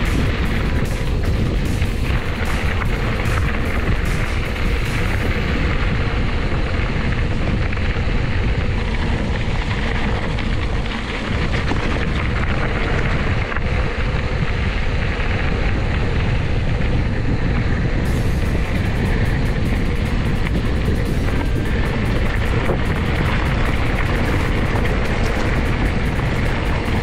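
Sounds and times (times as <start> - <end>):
bike rolling over dirt trail: 0.0 - 27.0
wind on microphone: 0.0 - 27.0.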